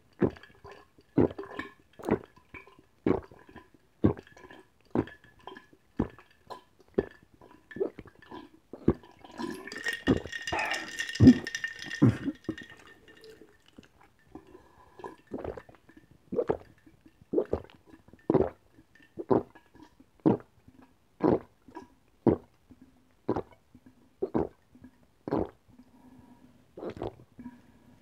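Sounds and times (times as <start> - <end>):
person gulping water: 0.1 - 25.6, 26.8 - 27.6.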